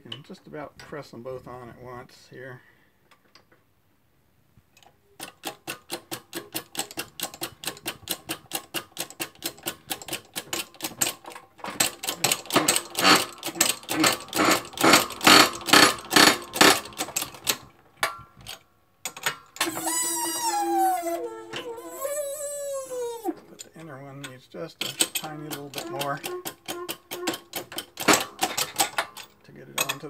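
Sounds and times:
shop press clicking: 0:05.2 - 0:18.2, 0:24.8 - 0:30.0.

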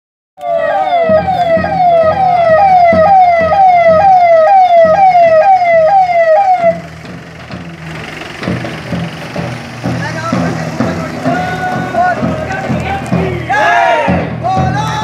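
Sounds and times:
electronic siren yelping: 0:00.4 - 0:06.9.

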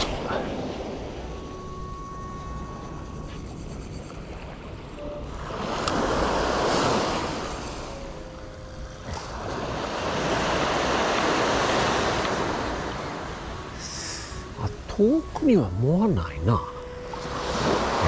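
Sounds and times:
small waves washing on beach: 0:05.4 - 0:08.4, 0:09.0 - 0:14.6, 0:17.0 - 0:18.0.

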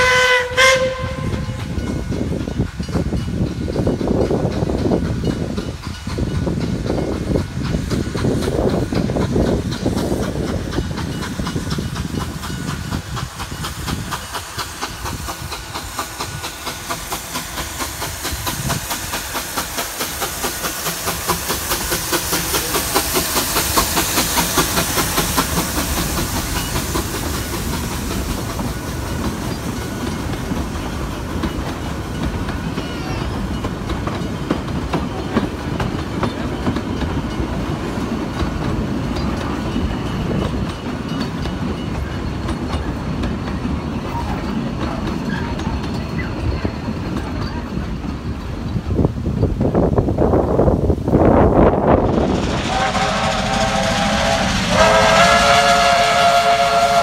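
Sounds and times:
steam hissing: 0:00.0 - 0:57.0
steam locomotive chugging: 0:00.0 - 0:57.0
train wheels clickety-clack: 0:00.0 - 0:57.0.

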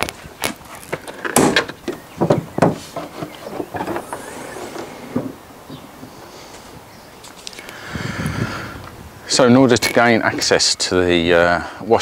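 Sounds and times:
car bonnet clunking open: 0:01.2 - 0:05.8
car door shutting: 0:03.8 - 0:05.4.

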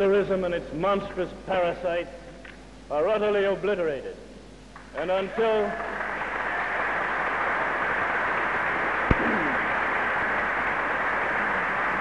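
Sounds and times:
speech: 0:00.0 - 0:02.2, 0:02.9 - 0:04.2, 0:05.0 - 0:05.8
large audience applauding: 0:05.5 - 0:12.0.

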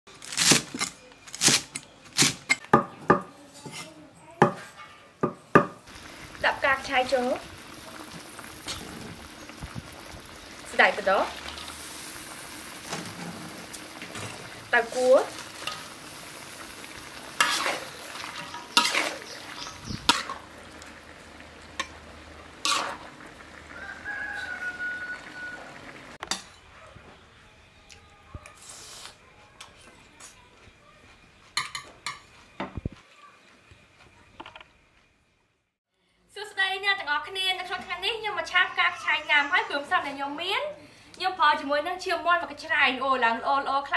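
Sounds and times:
metal spatula scraping wok: 0:03.5 - 0:04.0, 0:08.3 - 0:09.4, 0:11.0 - 0:20.5, 0:22.6 - 0:23.2
food sizzling in wok: 0:05.6 - 0:26.2
rooster crowing: 0:23.6 - 0:26.1.

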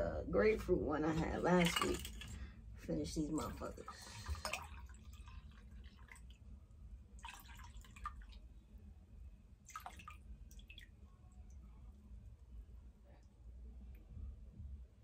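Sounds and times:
liquid dripping and trickling into glass: 0:03.8 - 0:06.4, 0:07.2 - 0:08.5.

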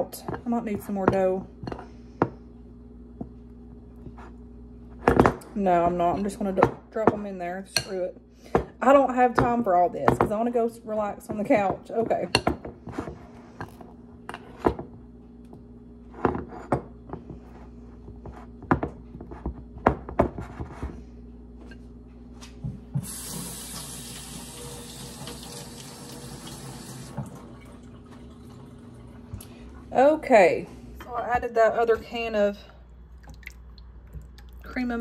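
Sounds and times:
kitchen tap running: 0:23.0 - 0:30.0.

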